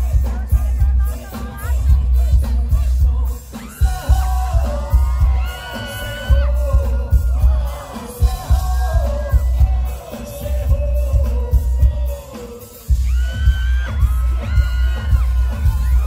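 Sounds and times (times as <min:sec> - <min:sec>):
live pop music over speakers: 0:00.0 - 0:16.0
pulsing bass beat: 0:00.0 - 0:16.0.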